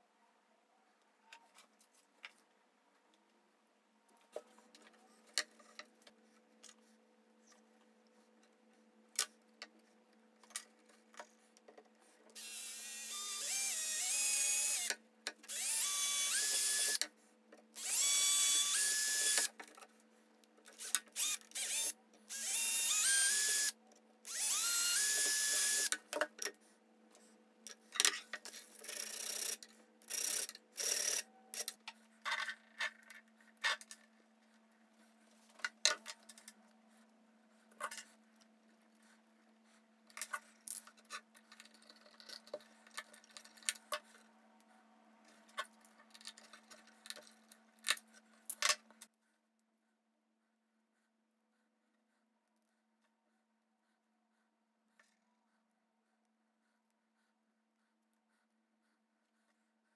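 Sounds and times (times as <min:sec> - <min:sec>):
electric drill boring wood: 0:12.4 - 0:14.9, 0:15.5 - 0:17.0, 0:17.8 - 0:19.5, 0:20.8 - 0:25.9.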